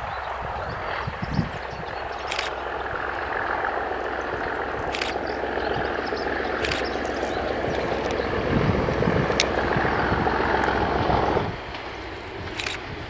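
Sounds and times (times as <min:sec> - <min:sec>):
diesel locomotive engine running: 0:00.0 - 0:13.0
short high clicks: 0:06.6 - 0:07.2, 0:12.6 - 0:12.8.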